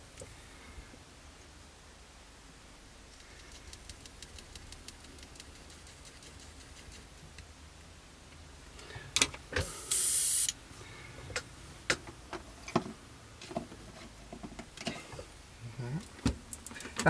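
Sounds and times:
airbrush compressed air hiss: 0:09.6 - 0:10.6.

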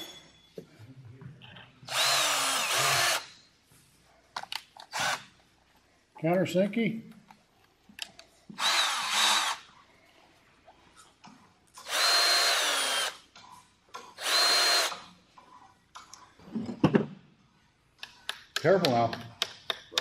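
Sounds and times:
cordless drill whine: 0:01.9 - 0:03.3, 0:08.6 - 0:09.6, 0:11.8 - 0:13.2, 0:14.2 - 0:15.0.

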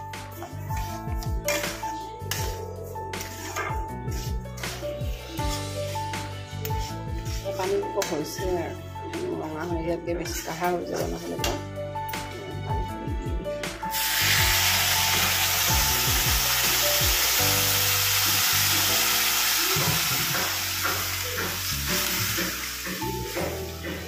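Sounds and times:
spatula stirring: 0:00.3 - 0:08.4
liquid sizzling in hot pan: 0:13.9 - 0:24.0.

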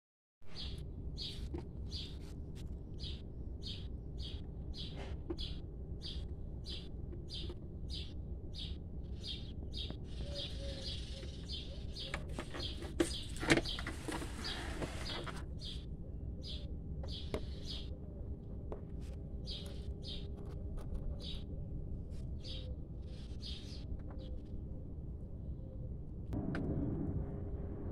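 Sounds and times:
small bird chirping: 0:00.5 - 0:02.3, 0:03.0 - 0:18.0, 0:19.4 - 0:21.6, 0:22.2 - 0:24.5
low background rumble: 0:00.7 - 0:27.9.

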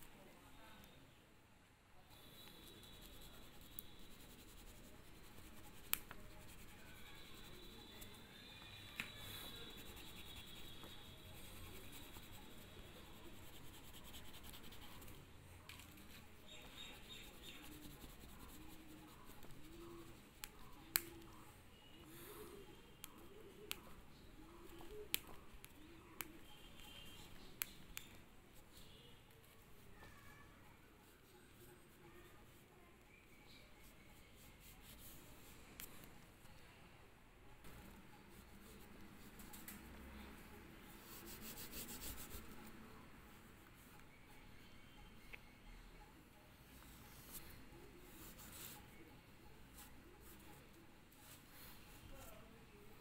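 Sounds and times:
pastel scratching on paper: 0:02.2 - 0:21.4, 0:37.6 - 0:42.9, 0:46.8 - 0:49.0, 0:49.6 - 0:52.4.

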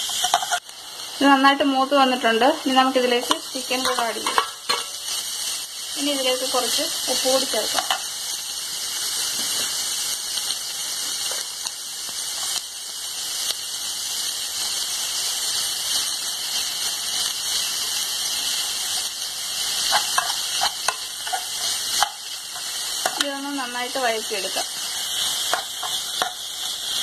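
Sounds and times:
spoon scraping a pan: 0:00.0 - 0:00.7, 0:03.2 - 0:05.2, 0:07.6 - 0:08.1, 0:19.6 - 0:23.4, 0:24.4 - 0:27.0
food sizzling in a pan: 0:00.0 - 0:27.0.

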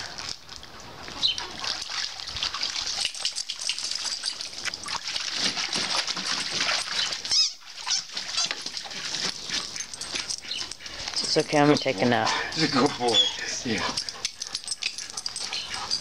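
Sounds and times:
dog splashing in water: 0:00.0 - 0:13.9
short high squeaks: 0:07.2 - 0:08.6.

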